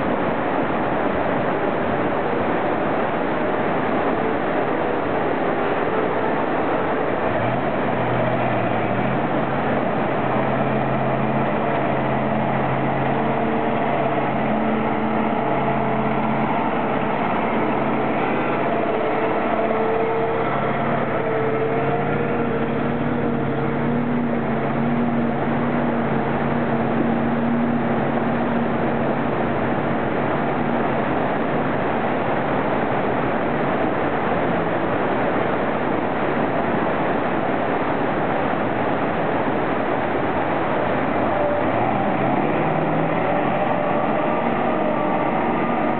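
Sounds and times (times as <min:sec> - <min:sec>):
stream rushing over boulders: 0:00.0 - 0:45.9
truck diesel engines running: 0:00.0 - 0:45.9.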